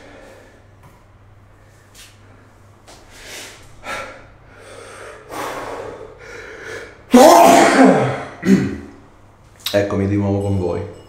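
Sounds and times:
man sneezing: 7.1 - 9.0.

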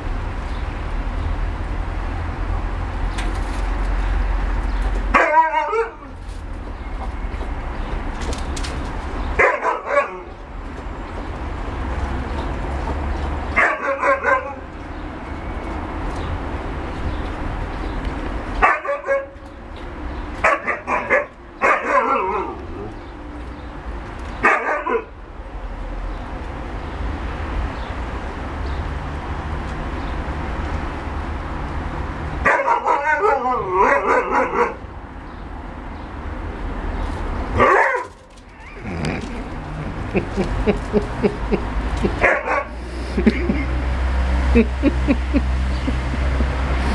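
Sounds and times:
dogs barking and yipping: 5.1 - 6.2, 9.2 - 10.4, 13.2 - 14.9, 18.5 - 19.5, 20.3 - 23.1, 24.4 - 25.2, 32.4 - 34.9, 37.5 - 43.8.

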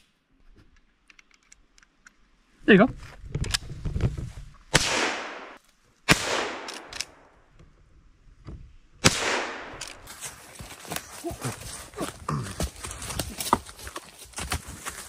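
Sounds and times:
rifle shots echoing: 4.7 - 7.3, 9.0 - 10.0.

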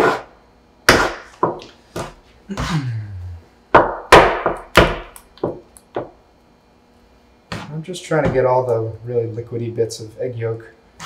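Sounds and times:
bench scraper chopping on wood: 0.0 - 0.3, 0.9 - 2.7, 3.8 - 5.6.

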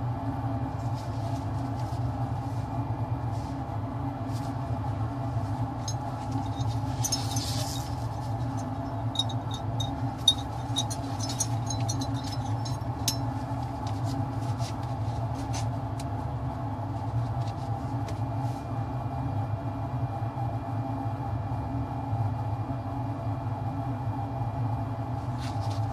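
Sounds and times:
exhaust fan hum: 0.0 - 25.9.

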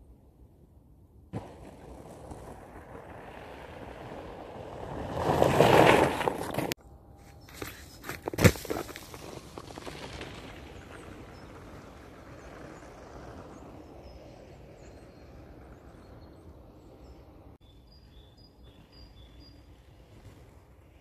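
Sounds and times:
small birds chirping: 12.4 - 20.1.

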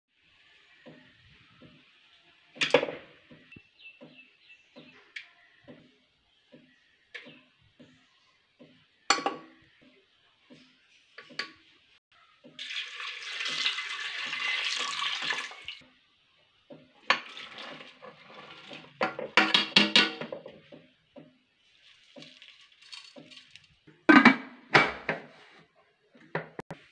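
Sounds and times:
knocks and clinks on metal pot: 9.1 - 9.6, 19.0 - 21.3
water pouring into metal pot: 12.6 - 15.8, 17.0 - 19.6, 21.7 - 23.8.

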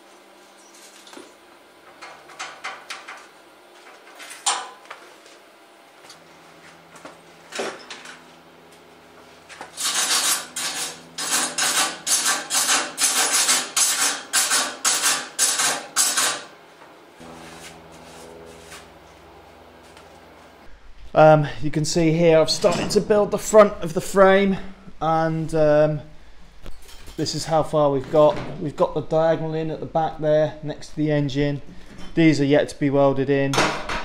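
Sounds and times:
wire brush scrubbing metal: 9.4 - 16.5, 17.2 - 20.5.

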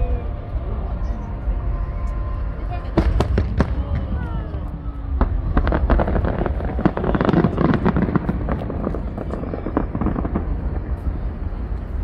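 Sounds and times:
fireworks crackling pops: 3.0 - 12.0.

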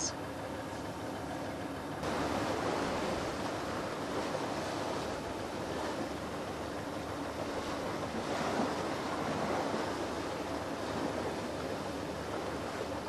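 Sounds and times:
wind: 0.0 - 13.0
water rushing: 2.0 - 13.0.

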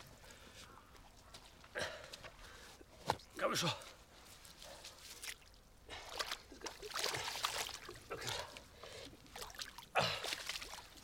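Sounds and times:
water sloshing and splashing: 4.2 - 11.0.

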